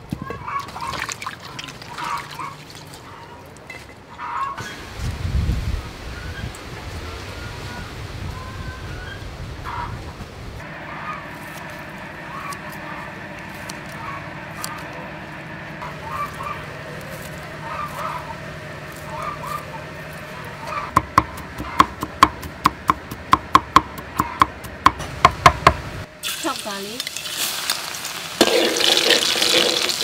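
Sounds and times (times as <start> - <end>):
short bird calls: 15.8 - 21.0
cleaver chopping on wooden board: 20.9 - 25.8.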